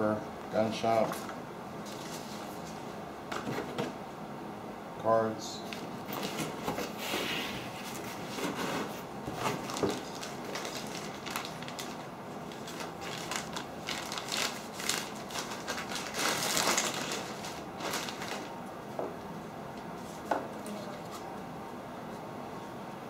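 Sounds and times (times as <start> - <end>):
plastic bag crinkling: 9.4 - 18.6.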